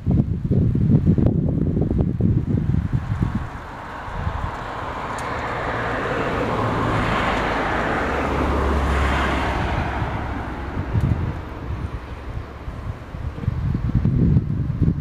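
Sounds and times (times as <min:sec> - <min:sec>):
low engine hum: 0:00.0 - 0:15.0
car passing road noise: 0:01.5 - 0:15.0.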